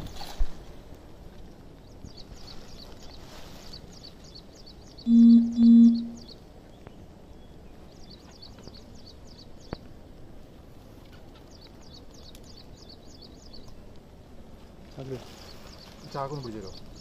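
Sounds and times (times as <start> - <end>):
bird chirping: 4.0 - 9.8
outdoor hiss: 12.5 - 17.0.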